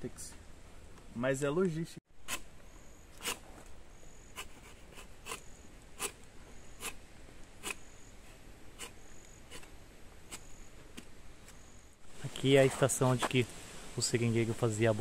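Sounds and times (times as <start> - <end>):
insect chirping: 2.2 - 12.4.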